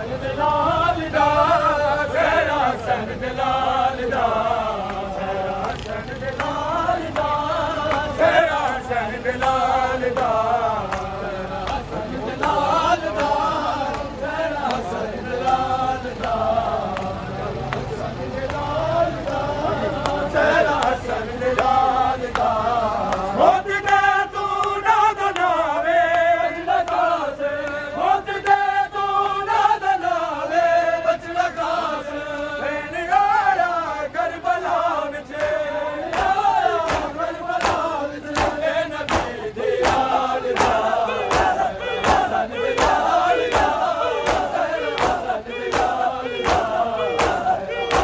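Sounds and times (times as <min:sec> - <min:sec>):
men chanting in unison: 0:00.0 - 0:48.0
chest-beating slaps: 0:35.4 - 0:48.0.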